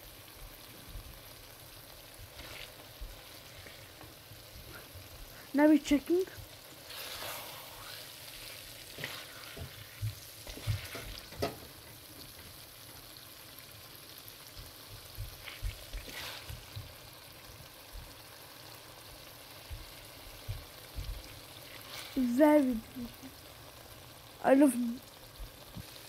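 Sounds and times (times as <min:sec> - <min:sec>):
curry sizzling in oil: 0:00.0 - 0:26.0
spatula scraping and knocking pot: 0:08.9 - 0:11.6.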